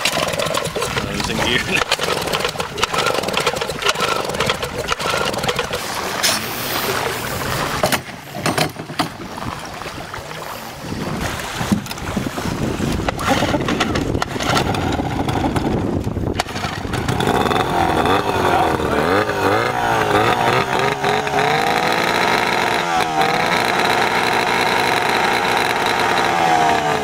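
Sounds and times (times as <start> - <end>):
knocks and clatter of handling: 0.0 - 6.4, 7.8 - 9.3, 13.0 - 17.2
outboard motor revving: 0.0 - 27.0.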